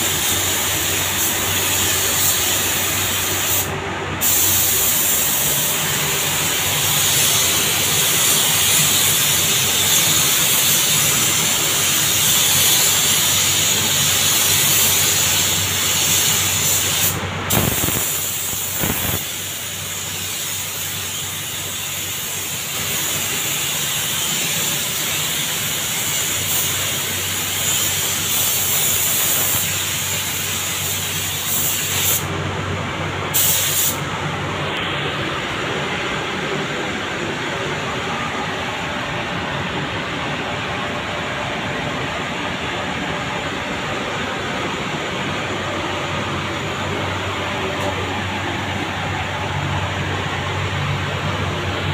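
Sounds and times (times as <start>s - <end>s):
paint spray gun hissing: 0.0s - 32.3s, 33.3s - 34.0s.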